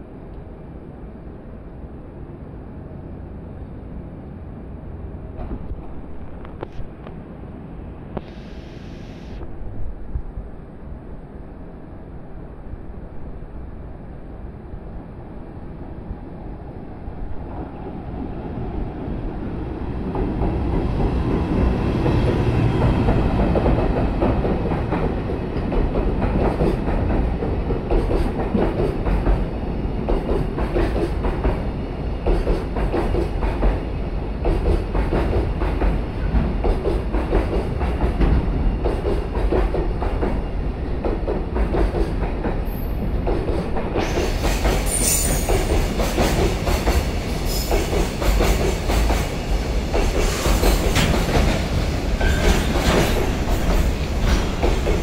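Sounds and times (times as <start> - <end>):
train wheels clacking over rail joints: 20.1 - 31.6, 32.2 - 55.0.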